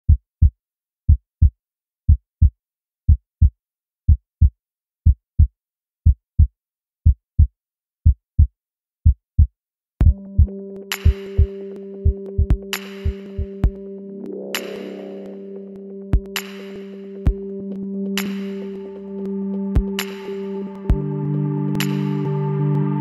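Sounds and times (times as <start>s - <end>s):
heartbeat thumps: 8.1s - 13.9s, 16.1s - 16.4s, 17.3s - 17.5s, 19.8s - 20.0s
music with steady tones: 10.0s - 23.0s.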